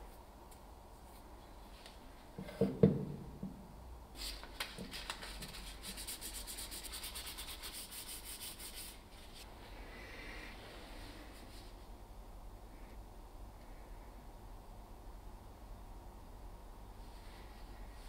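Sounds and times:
sandpaper rubbing: 4.2s - 9.4s.

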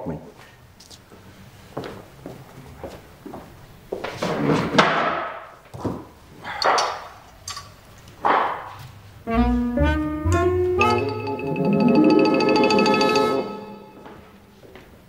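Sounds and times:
music: 9.2s - 14.6s.

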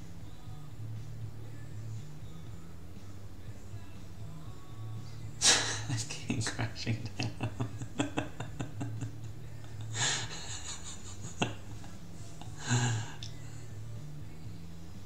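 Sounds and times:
low steady hum: 0.0s - 15.0s
person breathing out: 12.6s - 13.7s.

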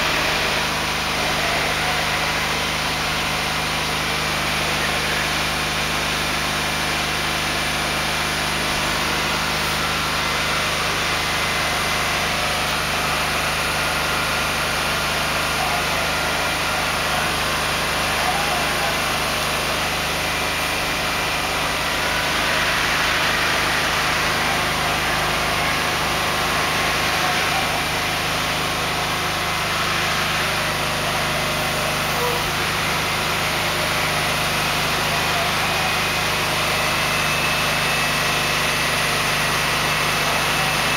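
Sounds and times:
heavy truck engine running: 0.0s - 40.9s.

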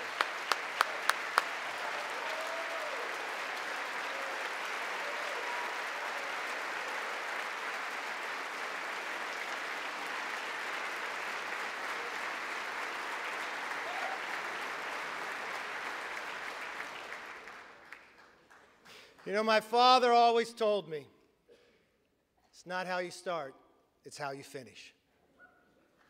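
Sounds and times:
close hand clap: 0.0s - 19.3s
crowd applauding: 0.0s - 19.4s.

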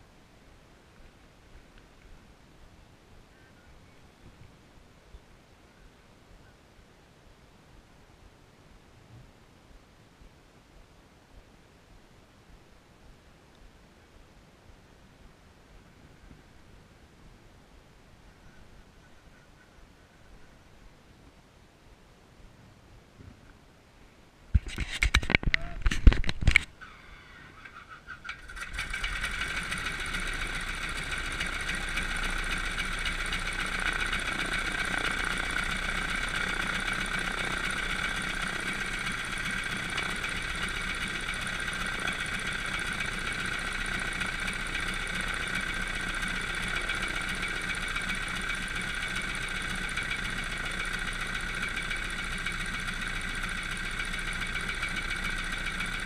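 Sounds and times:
piston engine idling: 28.2s - 56.0s.

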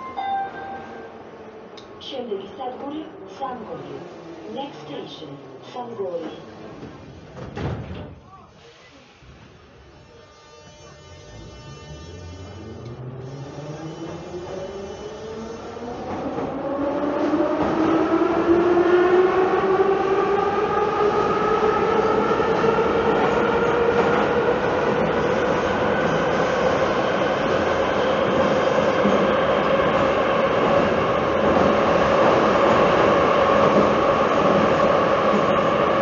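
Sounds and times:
train motor whine: 9.9s - 15.8s.

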